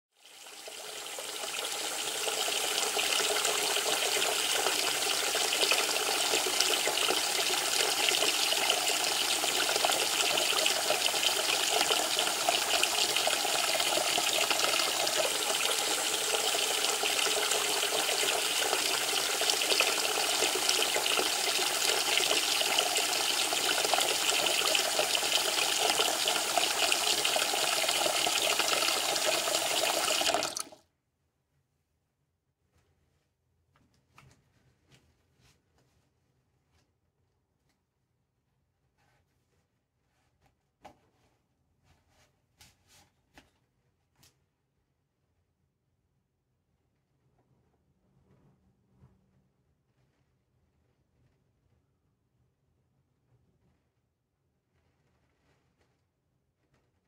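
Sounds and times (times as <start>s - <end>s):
water pouring from bath tap: 0.2s - 30.8s.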